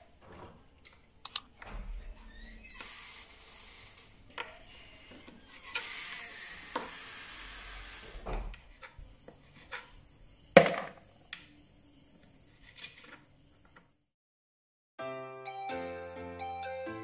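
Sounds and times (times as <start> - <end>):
steady hiss: 5.8 - 8.5.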